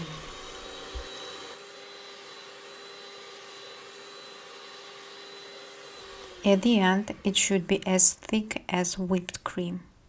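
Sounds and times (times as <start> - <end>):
electric hand mixer whine: 0.0 - 7.7.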